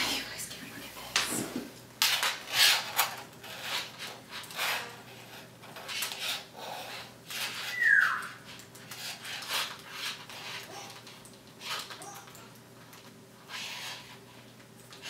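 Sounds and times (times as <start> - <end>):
parrot whistle: 7.6 - 8.4.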